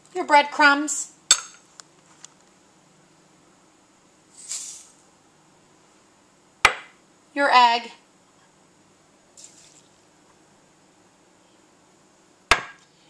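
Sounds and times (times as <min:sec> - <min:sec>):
breadcrumbs pouring hiss: 0:04.3 - 0:05.1, 0:09.3 - 0:10.0.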